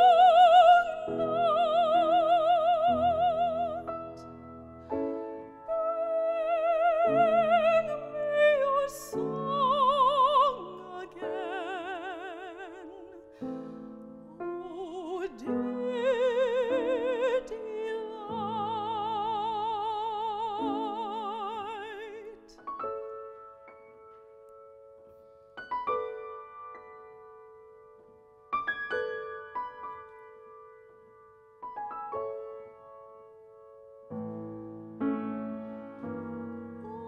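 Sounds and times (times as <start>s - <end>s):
woman singing opera: 0.0s - 4.4s, 5.6s - 22.6s, 36.5s - 37.0s
piano accompaniment: 0.0s - 37.0s.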